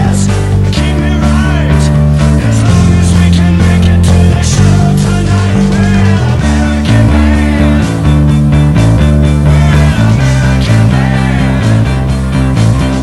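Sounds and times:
man singing: 0.0s - 8.2s, 9.0s - 12.1s
drums and cymbals: 0.0s - 13.0s
electric bass guitar: 0.0s - 13.0s.

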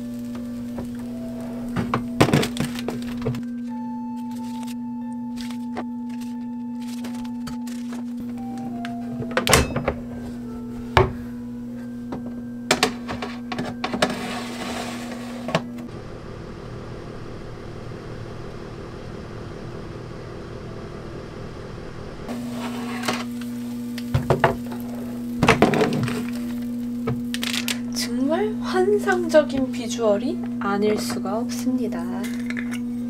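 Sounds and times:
air fryer fan hum: 0.0s - 33.0s.

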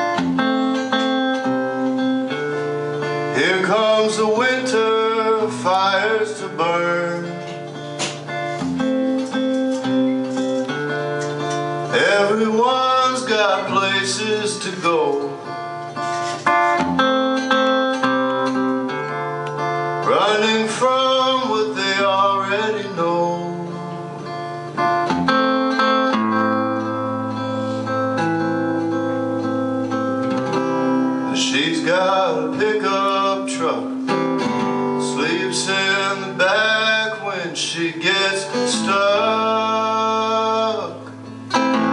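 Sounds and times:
acoustic guitar strumming: 0.0s - 41.9s
man singing: 3.0s - 7.8s, 11.9s - 15.6s, 20.0s - 24.2s, 31.3s - 41.9s.

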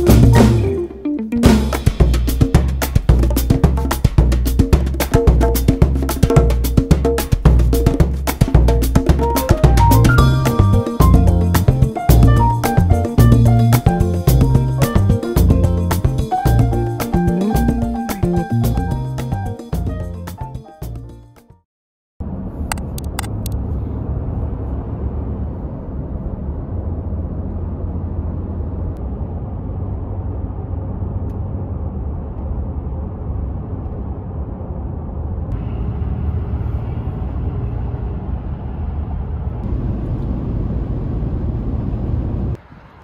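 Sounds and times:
car engine and tyre rumble: 22.2s - 43.0s
sharp clicks: 22.7s - 23.6s.

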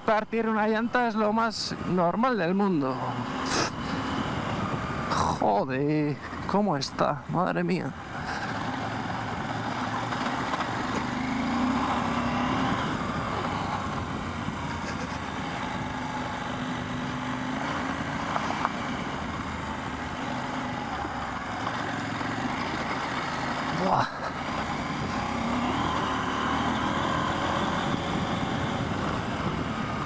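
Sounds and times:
wind and road noise: 0.0s - 30.0s
motorcycle engine running: 8.0s - 30.0s.

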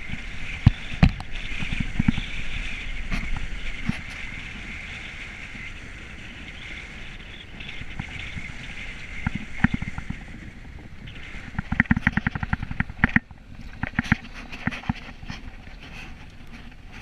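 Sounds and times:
road and wind noise: 0.0s - 17.0s
sharp clicks and knocks: 11.5s - 15.4s.

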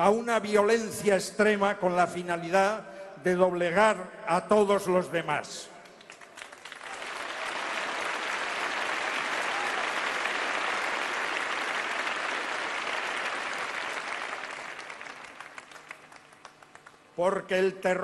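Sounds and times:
crowd applauding: 5.9s - 17.2s.

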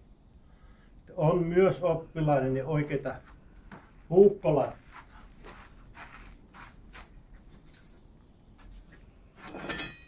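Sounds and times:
ringing metallic clink: 9.6s - 10.0s.

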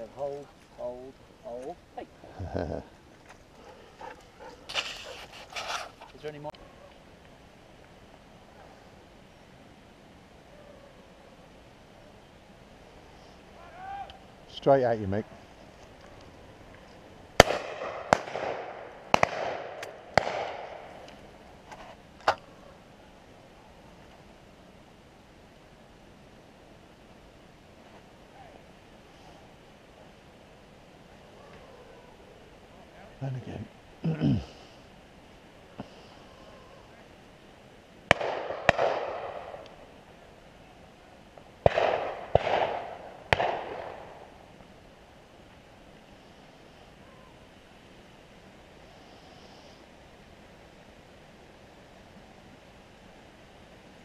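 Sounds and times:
shotgun shots echoing: 17.4s - 21.0s, 38.1s - 39.6s, 41.6s - 44.3s.

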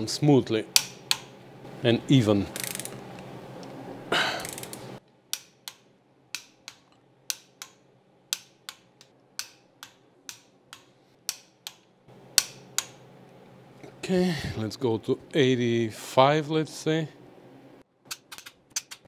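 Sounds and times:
torque wrench ratcheting clicks: 2.6s - 3.0s, 4.4s - 4.8s.

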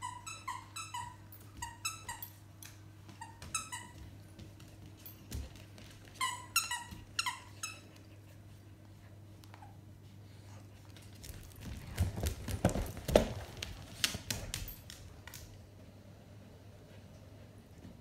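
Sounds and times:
squeaky toy squeaks: 0.0s - 2.3s, 6.2s - 7.9s.

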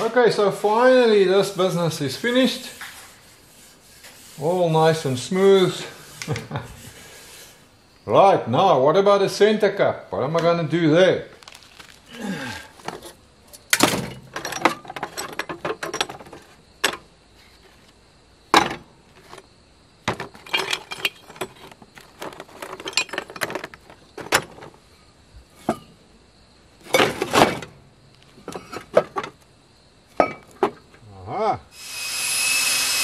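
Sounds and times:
small metal parts rattling in bucket: 13.8s - 16.6s, 20.1s - 24.8s.

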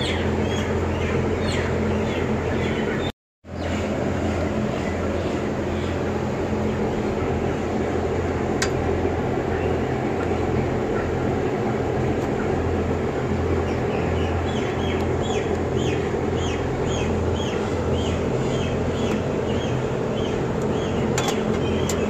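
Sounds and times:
bird chirping: 0.0s - 3.8s, 13.5s - 22.0s
blower fans droning: 0.0s - 22.0s
low electrical hum: 0.0s - 22.0s.

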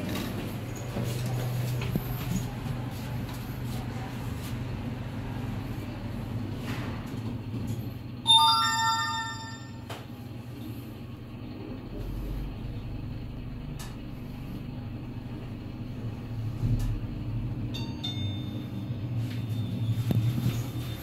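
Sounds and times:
elevator rumble and hum: 0.0s - 21.0s
thin high tone: 8.3s - 9.9s.

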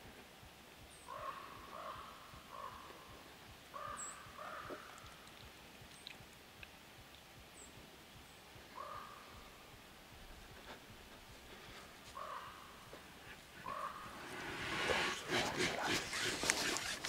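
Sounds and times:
crow cawing: 1.1s - 3.0s, 3.7s - 5.0s, 8.8s - 9.3s, 12.1s - 13.0s, 13.6s - 14.1s
small bird chirping: 3.7s - 6.2s.

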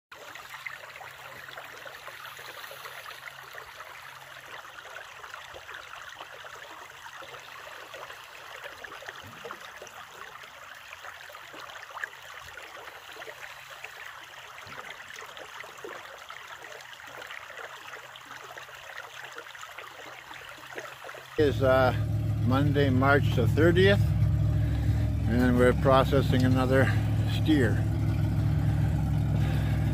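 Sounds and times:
creek running over rocks: 0.1s - 29.9s.

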